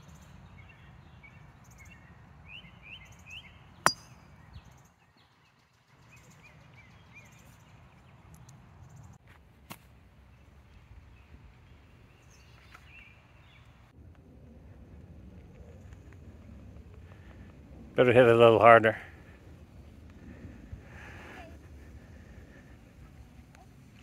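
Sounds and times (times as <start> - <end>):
birds chirping: 0.0 - 9.2
golf club striking ball: 3.8 - 4.2.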